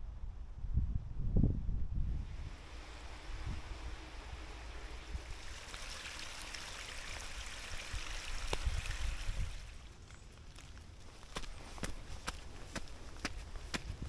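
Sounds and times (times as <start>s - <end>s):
water rushing down drainage channel: 2.2s - 12.9s.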